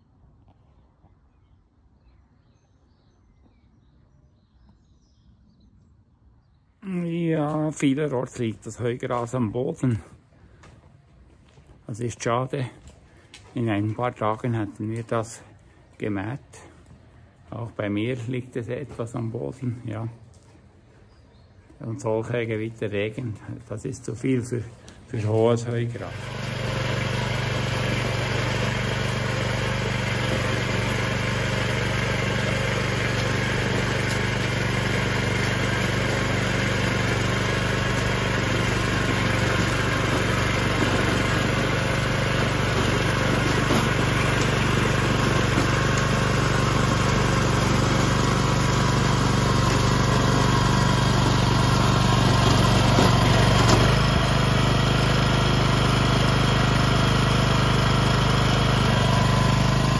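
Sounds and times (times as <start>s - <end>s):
tines working soil: 22.3s - 59.9s
rotary tiller engine running: 25.5s - 59.9s.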